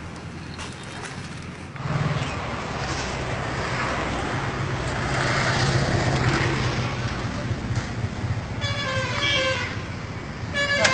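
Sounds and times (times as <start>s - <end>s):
roadside traffic: 0.0s - 10.9s
vehicle horn honking: 8.6s - 9.9s, 10.5s - 10.9s.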